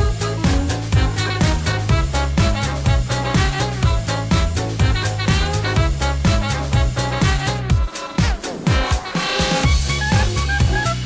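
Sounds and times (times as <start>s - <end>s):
upbeat background music: 0.0s - 11.0s.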